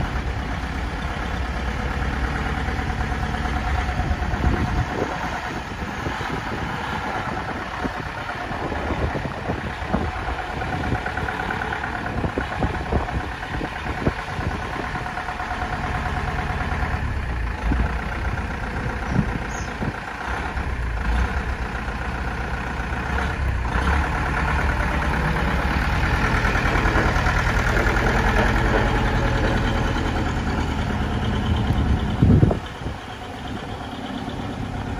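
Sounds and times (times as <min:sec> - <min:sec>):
lorry engine running: 0:00.0 - 0:34.9.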